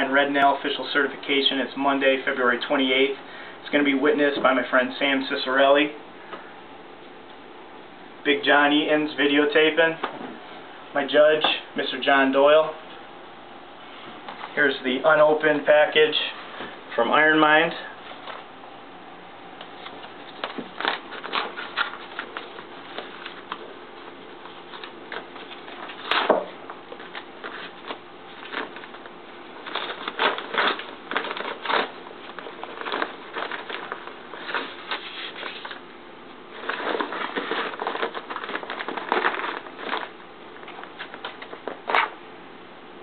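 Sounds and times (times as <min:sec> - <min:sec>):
paper envelope crinkling and tearing: 0:19.8 - 0:35.8, 0:36.5 - 0:42.2.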